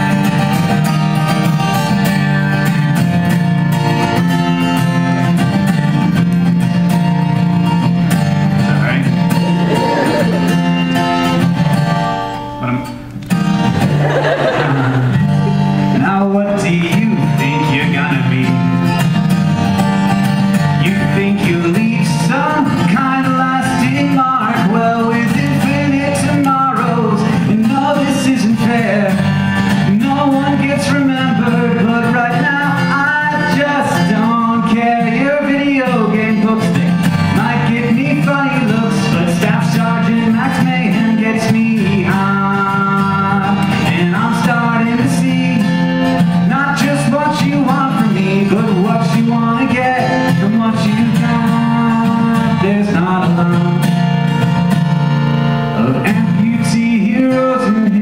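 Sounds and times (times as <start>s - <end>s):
strummed acoustic guitar: 0.0s - 58.0s
man singing: 8.7s - 11.6s, 15.8s - 18.9s, 20.7s - 54.2s, 55.7s - 58.0s.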